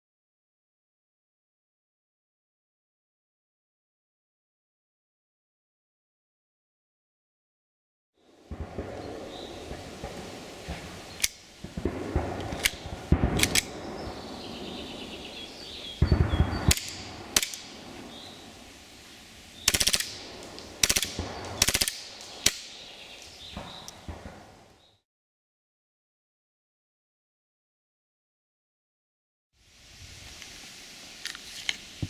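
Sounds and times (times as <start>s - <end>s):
airsoft pistol firing pops: 12.2s - 14.0s, 16.0s - 18.3s.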